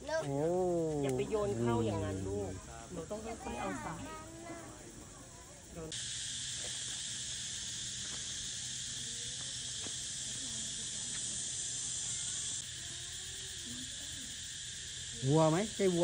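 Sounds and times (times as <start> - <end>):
faint distant voices: 0.0 - 5.9
insects droning: 0.0 - 16.0.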